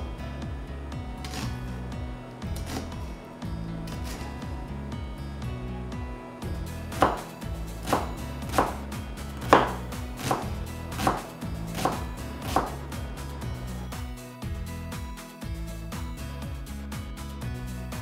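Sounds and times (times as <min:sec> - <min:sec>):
soft background music: 0:00.0 - 0:18.0
knife chopping on cutting board: 0:06.9 - 0:12.9.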